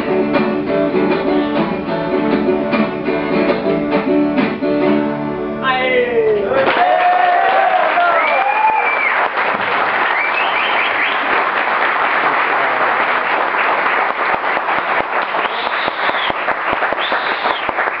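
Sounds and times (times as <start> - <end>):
audience applauding: 6.6 - 18.0
high-pitched calls from crowd: 10.1 - 11.3, 14.8 - 17.9.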